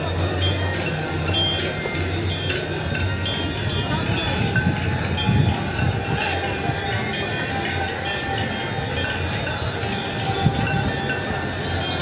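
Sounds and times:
crowd voices: 0.0s - 12.0s
hand bells ringing: 0.0s - 12.0s.

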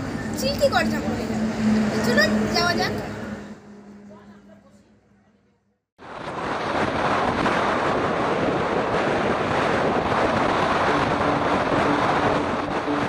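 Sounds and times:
wind roaring on microphone: 6.0s - 13.0s.

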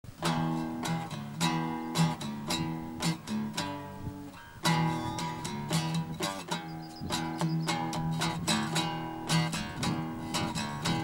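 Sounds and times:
acoustic guitar strumming: 0.1s - 11.0s.

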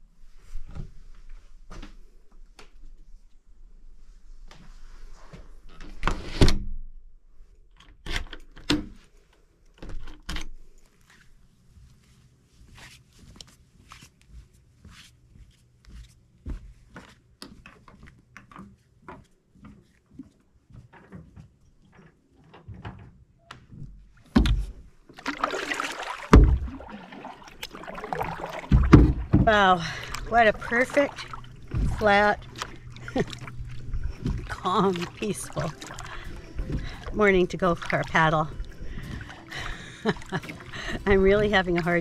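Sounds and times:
footsteps on wooden dock: 14.3s - 22.2s, 23.7s - 42.0s
paddle splashing in water: 24.2s - 42.0s.

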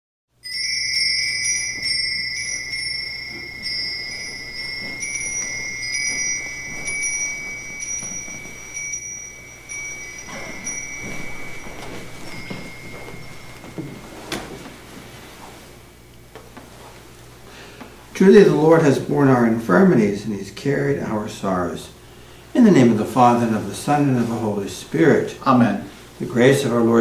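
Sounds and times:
small bell ringing: 0.4s - 14.9s.

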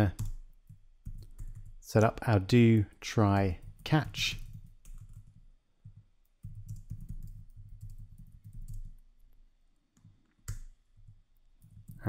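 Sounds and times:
typing on computer keyboard: 0.0s - 1.8s, 3.5s - 9.0s, 10.4s - 12.0s.

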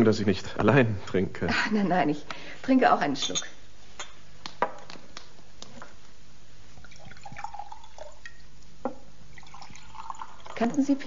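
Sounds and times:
liquid pouring into glasses: 6.8s - 11.0s.

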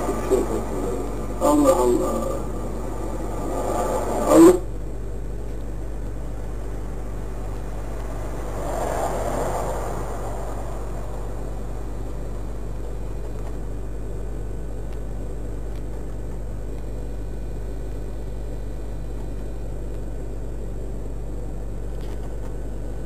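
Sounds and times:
low electrical hum: 0.0s - 23.0s
hiss: 7.5s - 12.4s.

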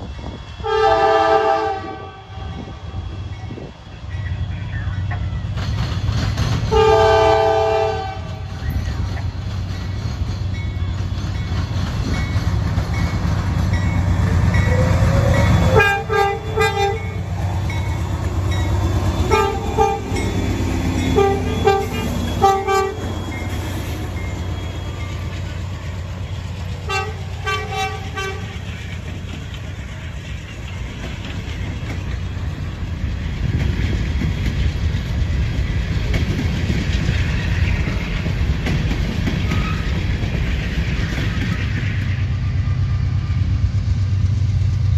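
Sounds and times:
diesel locomotives rumbling: 0.0s - 44.9s
rolling freight cars rumble: 0.0s - 44.9s
train air horn blasts: 0.6s - 3.0s, 6.7s - 8.5s, 14.7s - 17.3s, 19.3s - 20.2s, 21.0s - 23.2s, 26.9s - 28.6s.

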